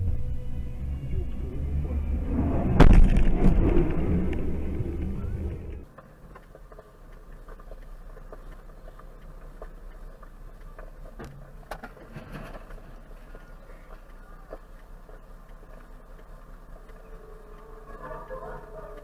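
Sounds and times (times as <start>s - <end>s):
engine drone in cab: 0.0s - 6.4s, 12.6s - 19.0s
road and engine rumble: 0.0s - 19.0s
faint ticks: 5.8s - 19.0s.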